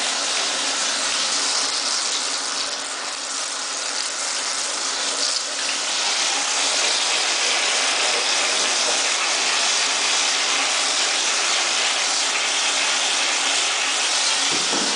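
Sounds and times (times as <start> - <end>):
shower spraying into bathtub: 0.0 - 14.9.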